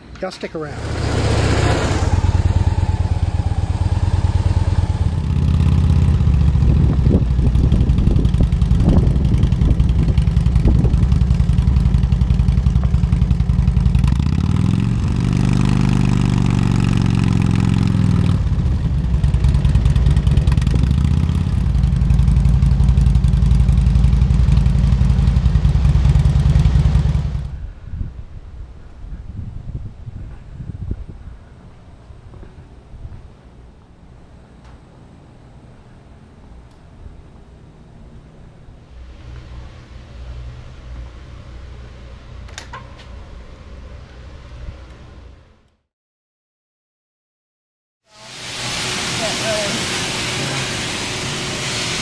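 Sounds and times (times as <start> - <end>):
motorcycle engine running: 0.7 - 27.6.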